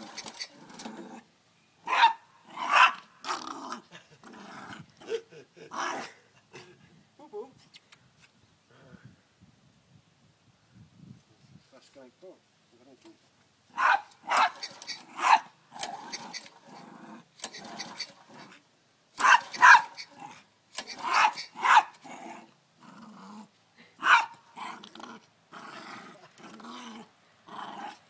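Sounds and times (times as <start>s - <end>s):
puppy barking: 1.9s - 3.0s, 13.7s - 14.6s, 15.2s - 15.5s, 19.2s - 20.1s, 21.0s - 22.0s, 24.0s - 24.4s
pull-start cord yanked: 17.4s - 18.2s, 20.7s - 21.5s.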